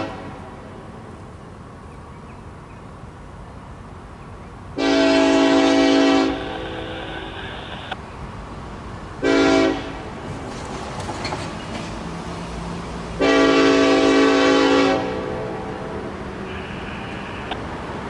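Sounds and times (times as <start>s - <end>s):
locomotive air horn blasts: 0.0s - 0.5s, 4.8s - 7.8s, 9.2s - 10.0s, 13.2s - 17.6s.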